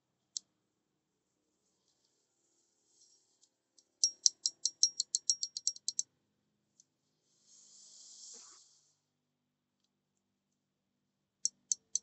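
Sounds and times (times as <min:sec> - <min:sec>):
soft hiss: 0:01.6 - 0:03.6, 0:07.0 - 0:09.1.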